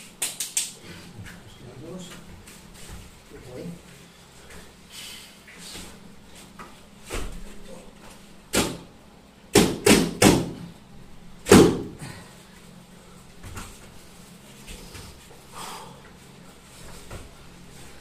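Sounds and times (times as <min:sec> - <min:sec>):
bodies slapping foam mats: 0:05.5 - 0:08.9, 0:09.5 - 0:10.7, 0:11.4 - 0:12.0, 0:13.4 - 0:15.4, 0:16.7 - 0:18.0.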